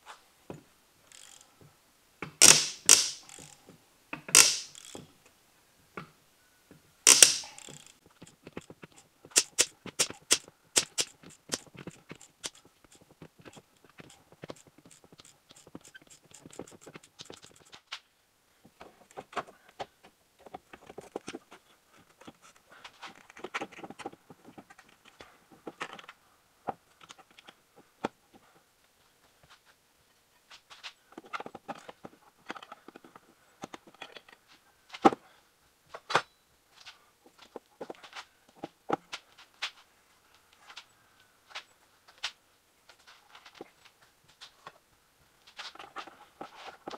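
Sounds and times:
socket ratchet clicking: 2.4s - 3.6s, 4.3s - 5.0s, 7.1s - 8.4s, 9.4s - 13.0s.

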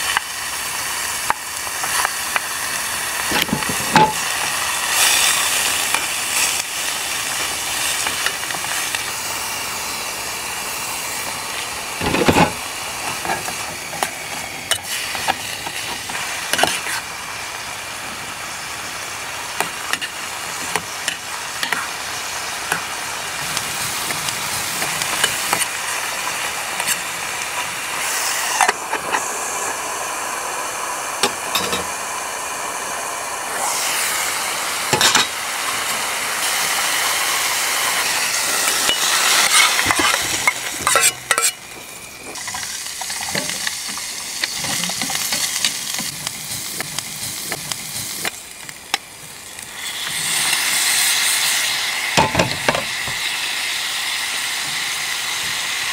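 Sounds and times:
meat sizzling in oil: 0.0s - 55.9s
utensil scraping metal pot: 3.3s - 6.7s, 12.0s - 17.1s, 37.9s - 48.4s.

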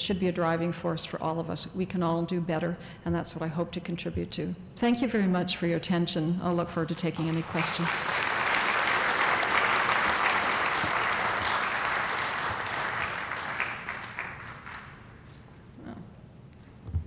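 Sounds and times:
audience applauding: 7.2s - 15.2s.

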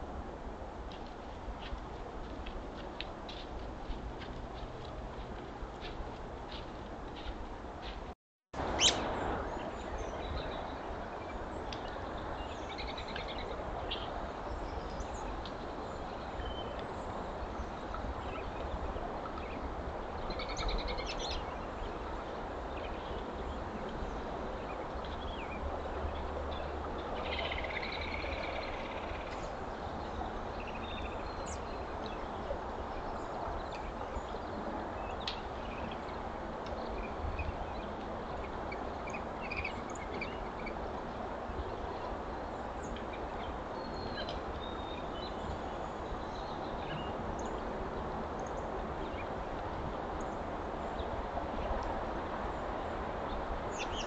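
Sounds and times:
steady outdoor hiss: 0.0s - 54.0s
small birds chirping: 8.8s - 17.0s.

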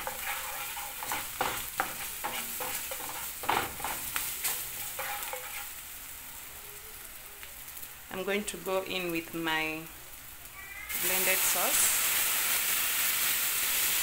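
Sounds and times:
wooden spoon scraping a pan: 0.0s - 5.8s
onions sizzling in hot oil: 0.0s - 14.0s.

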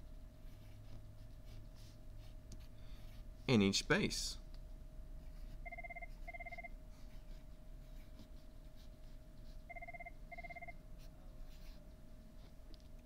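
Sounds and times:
telephone ringing: 5.6s - 6.7s, 9.7s - 10.8s.

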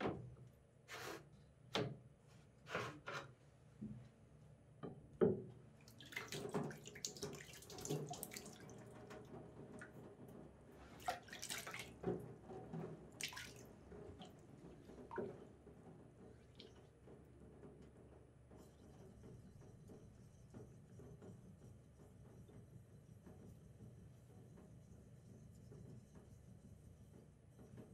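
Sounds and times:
water splashing and dripping: 5.8s - 9.2s, 11.0s - 12.1s, 13.1s - 15.4s, 16.4s - 16.9s.

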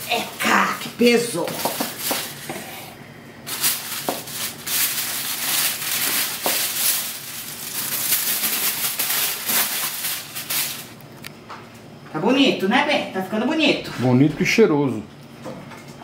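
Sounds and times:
aluminium foil crinkling: 0.0s - 2.5s, 3.5s - 11.3s.

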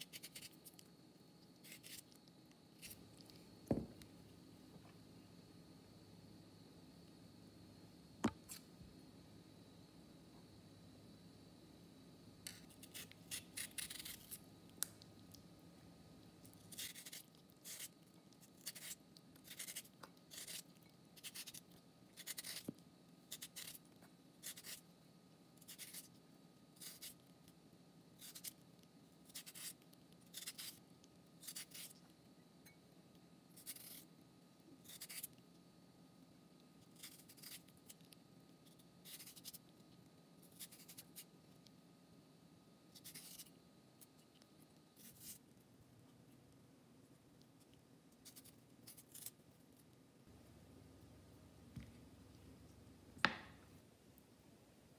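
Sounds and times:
peeler scraping cucumber: 1.6s - 2.2s, 12.5s - 14.4s, 16.7s - 23.8s, 24.4s - 24.8s, 36.9s - 38.0s.

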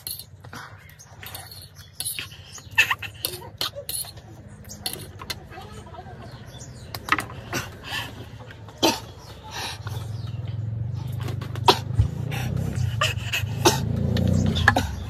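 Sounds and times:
people coughing: 8.7s - 9.4s, 11.6s - 12.2s
people sniffing: 11.6s - 15.0s
sharp breaths: 11.7s - 15.0s.

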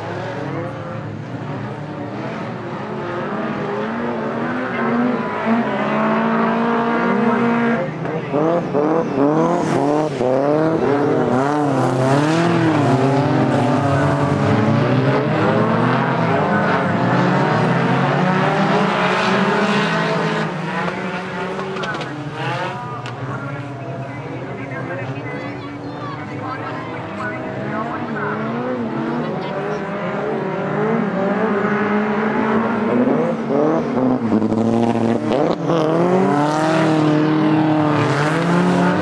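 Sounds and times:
race car engines revving: 0.0s - 39.0s.

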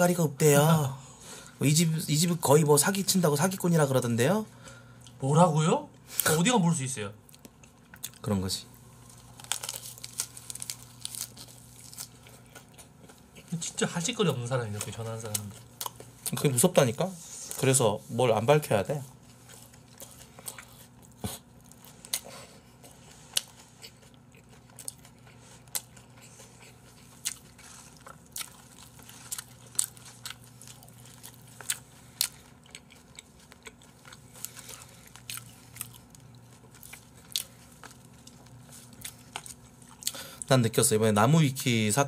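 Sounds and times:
faint low hum: 0.0s - 42.0s
chewing and biting: 19.2s - 40.5s.

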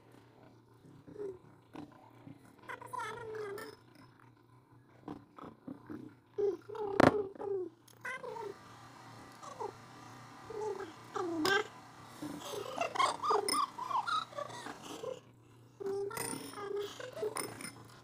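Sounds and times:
hummed murmurs: 8.2s - 15.2s.

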